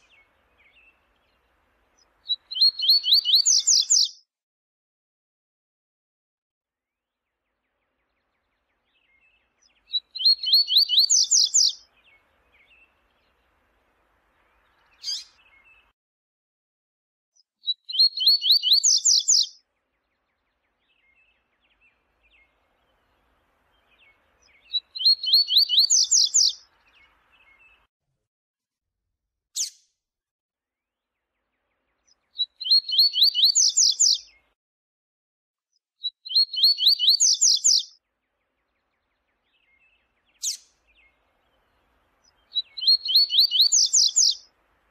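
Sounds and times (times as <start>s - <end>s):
bird singing high rising notes: 0.0s - 4.1s, 8.1s - 13.5s, 14.4s - 15.9s, 17.6s - 27.9s, 32.1s - 34.4s, 36.2s - 44.9s.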